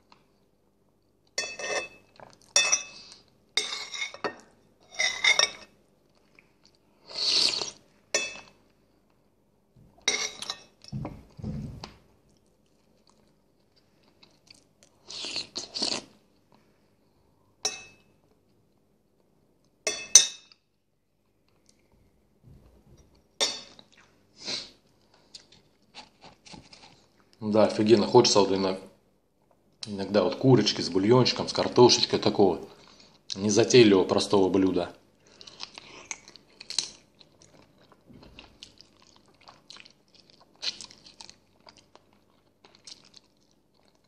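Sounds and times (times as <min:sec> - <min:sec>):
cutlery clinking against a bowl: 0:01.4 - 0:03.0, 0:03.6 - 0:05.8, 0:08.1 - 0:08.6, 0:10.0 - 0:10.9, 0:17.6 - 0:18.1, 0:19.9 - 0:20.6, 0:23.4 - 0:23.8
man chewing food: 0:02.1 - 0:03.5, 0:06.0 - 0:09.2, 0:09.9 - 0:16.7, 0:23.0 - 0:27.4, 0:35.2 - 0:44.0.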